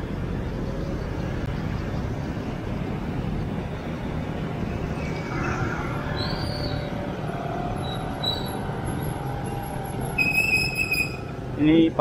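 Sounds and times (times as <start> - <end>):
motorcycle engines: 0.0 - 12.0
road noise: 0.0 - 12.0
high-pitched squeal: 4.6 - 11.4.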